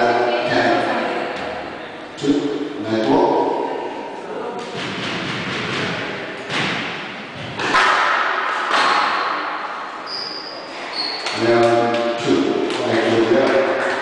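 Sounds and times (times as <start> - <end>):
squash ball strikes: 4.6 - 9.6
shoe squeaks: 10.0 - 11.6.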